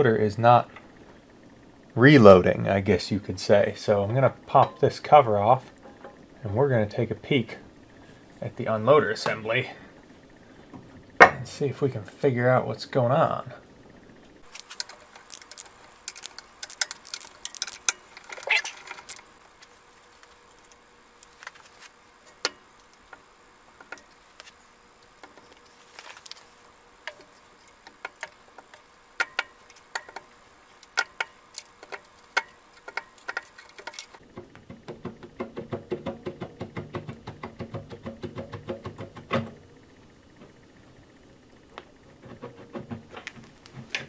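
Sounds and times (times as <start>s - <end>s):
ratchet wrench clicking: 14.5s - 19.2s.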